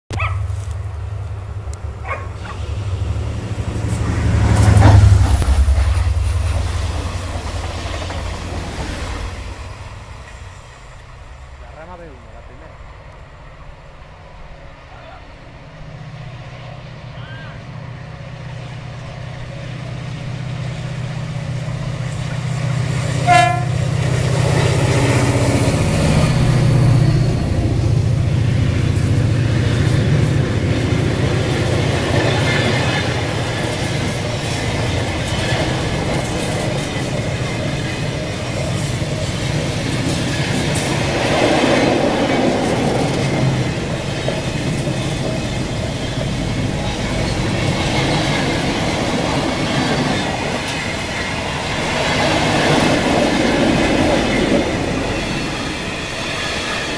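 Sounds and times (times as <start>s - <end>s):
diesel locomotive engine drone: 0.1s - 56.9s
train wheels clacking over rails: 1.8s - 12.7s, 18.5s - 56.9s
train horn blast: 23.1s - 24.0s.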